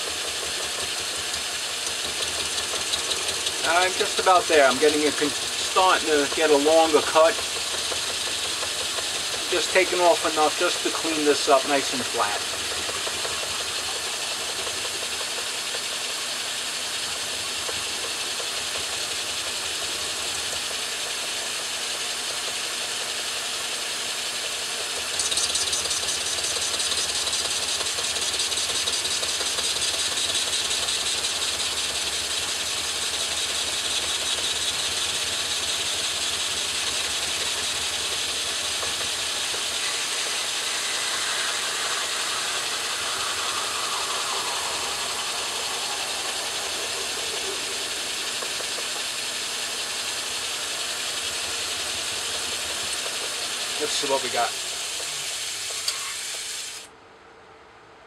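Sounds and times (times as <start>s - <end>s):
lathe cutting hiss: 0.0s - 56.9s
lathe running: 0.0s - 56.9s
thin high whine: 3.6s - 7.4s, 8.7s - 15.3s, 36.9s - 56.2s.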